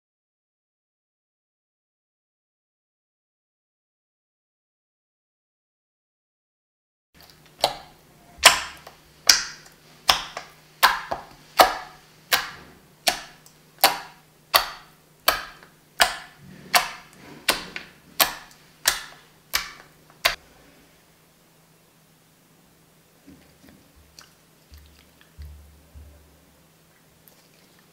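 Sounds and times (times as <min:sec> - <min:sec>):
slime squishing against table: 0:07.2 - 0:20.4.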